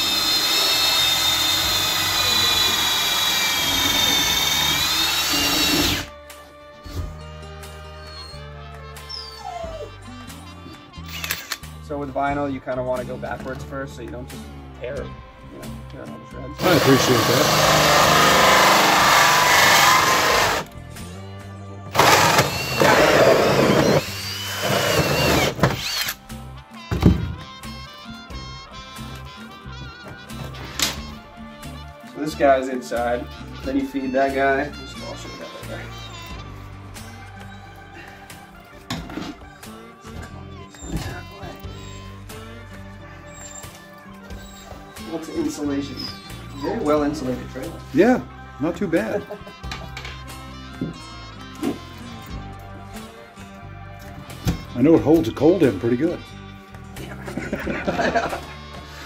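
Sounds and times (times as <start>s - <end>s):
cordless drill motor whining: 0.0s - 6.1s, 16.6s - 20.8s, 21.9s - 26.3s.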